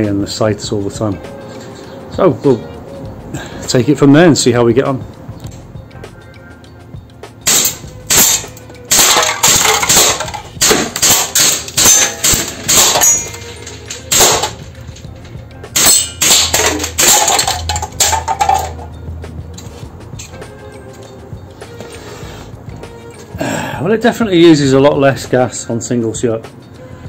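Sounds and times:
metallic hits on cans: 7.4s - 19.0s
airsoft pistol shots: 7.5s - 13.0s.

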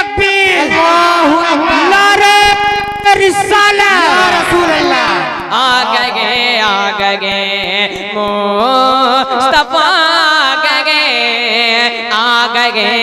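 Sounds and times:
boy singing through microphone: 0.0s - 13.0s
steady low drone: 0.7s - 6.5s.

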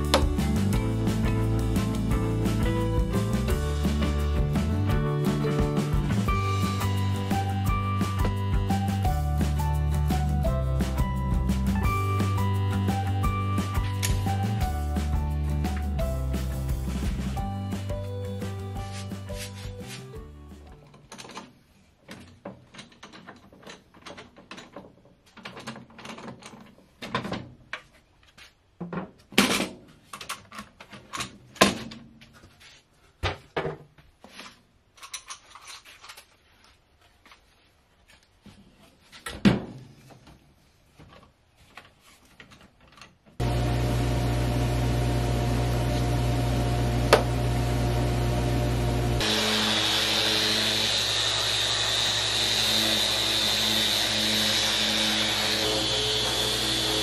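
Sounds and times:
orbit sander on wood: 43.4s - 57.0s.

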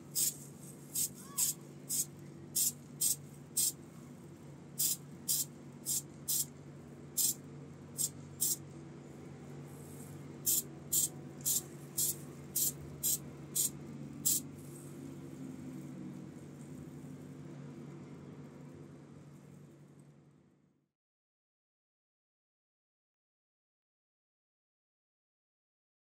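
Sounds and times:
aerosol spray hisses: 0.2s - 0.4s, 1.0s - 3.7s, 4.8s - 6.5s, 8.0s - 8.6s, 10.5s - 14.4s.

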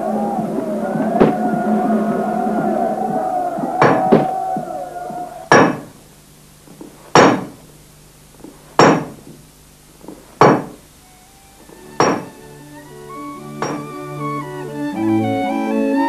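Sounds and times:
organ music: 0.0s - 5.6s, 11.0s - 16.0s
forge hammer striking iron: 5.5s - 5.9s, 7.2s - 7.6s, 8.8s - 9.2s, 10.4s - 10.8s, 12.0s - 12.4s, 13.6s - 13.8s.

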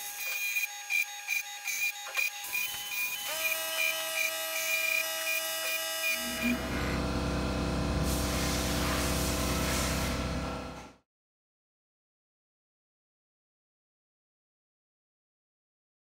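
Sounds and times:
cutting sound: 0.0s - 7.2s
cnc mill motors whining: 0.0s - 11.0s
low hum: 6.2s - 11.0s.

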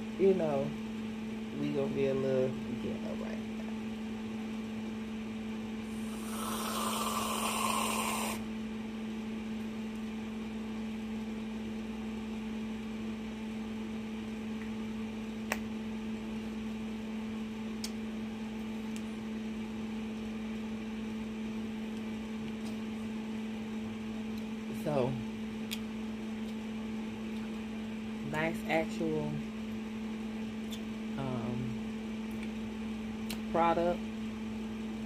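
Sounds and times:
steady low hum: 0.0s - 35.0s
aerosol can hissing: 6.0s - 8.4s.

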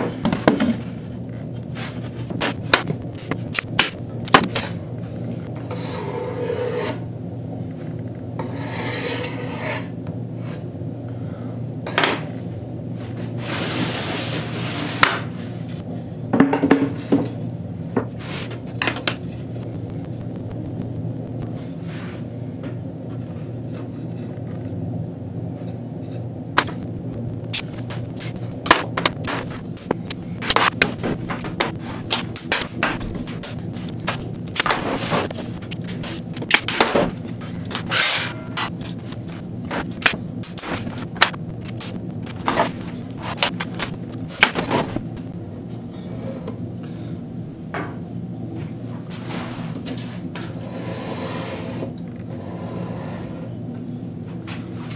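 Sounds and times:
low hum: 0.0s - 13.1s, 17.2s - 48.6s
panels rubbing and sliding: 13.0s - 15.6s, 27.6s - 45.1s.

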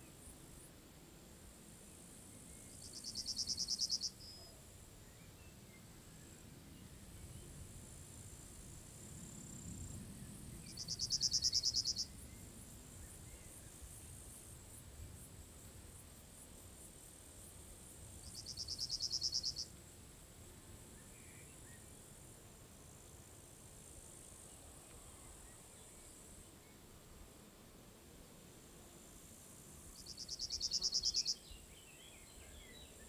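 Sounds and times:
faint high insect trill: 0.0s - 33.0s
loud pulsed insect chirps: 2.4s - 4.4s, 9.1s - 15.3s, 17.4s - 19.8s, 29.4s - 31.7s.

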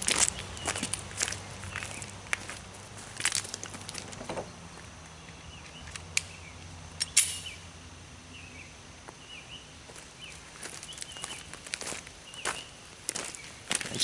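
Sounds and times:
footsteps crunching on gravel: 0.0s - 6.1s, 9.0s - 14.0s.

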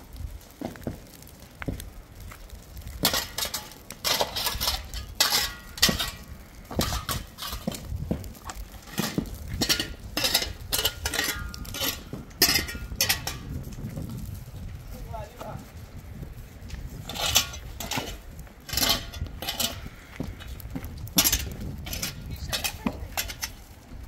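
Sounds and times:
hand tool striking stony ground: 3.0s - 13.6s, 17.0s - 23.6s.

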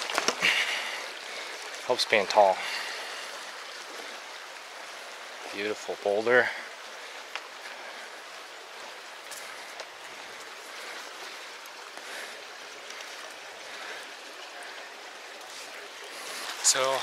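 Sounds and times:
creek water flowing: 0.0s - 17.0s.

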